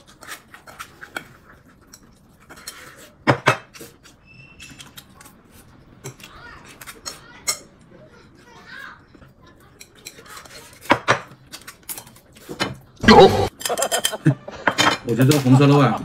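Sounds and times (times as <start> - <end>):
utensils clinking on bowls and plates: 6.0 - 7.8, 13.4 - 16.0.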